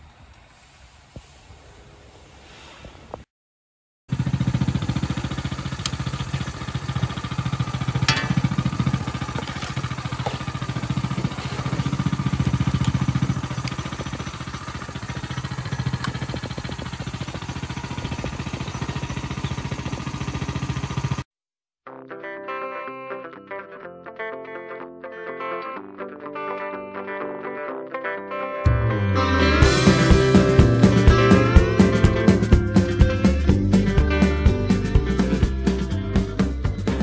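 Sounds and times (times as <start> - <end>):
small engine puttering: 4.1 - 21.3.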